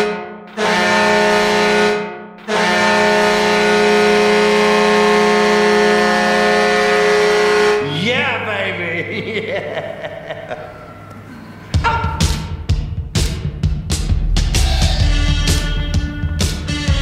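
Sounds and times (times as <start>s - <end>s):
goal horn blasts: 0.0s - 8.0s, 15.0s - 17.0s.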